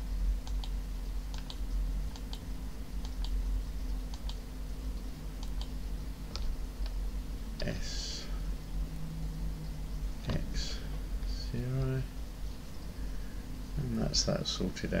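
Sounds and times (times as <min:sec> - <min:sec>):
low electrical hum: 0:00.0 - 0:15.0
computer mouse clicks: 0:00.4 - 0:03.4, 0:04.1 - 0:04.4, 0:05.4 - 0:07.0.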